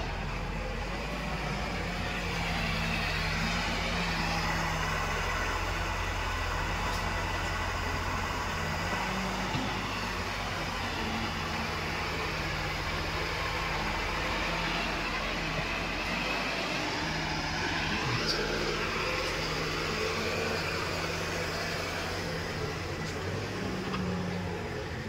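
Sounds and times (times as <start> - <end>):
diesel engines droning: 0.0 - 25.0.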